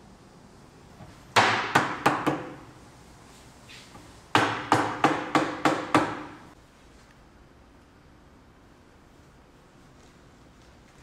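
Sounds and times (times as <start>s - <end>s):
mallet striking wooden frame: 1.4s - 2.6s, 4.3s - 6.4s.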